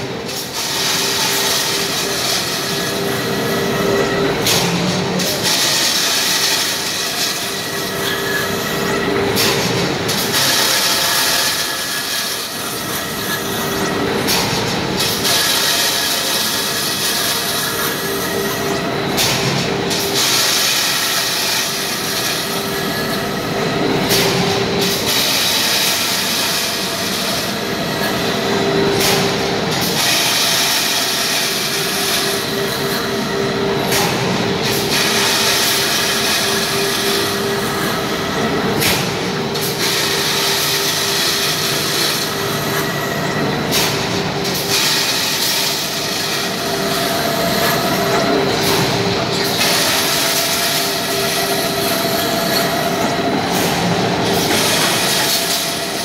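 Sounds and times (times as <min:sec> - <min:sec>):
machine mechanical hum: 0:00.0 - 0:56.0.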